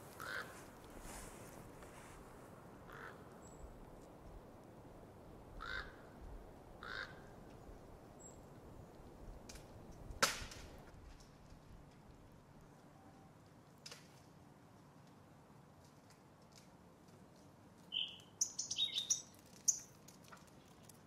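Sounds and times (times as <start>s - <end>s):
crow cawing: 0.2s - 0.6s, 2.9s - 3.2s, 5.6s - 6.1s, 6.8s - 7.3s.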